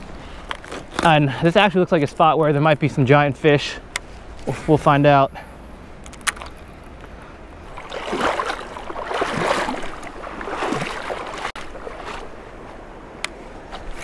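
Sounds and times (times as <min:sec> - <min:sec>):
water splashing around wading person: 0:07.6 - 0:12.8.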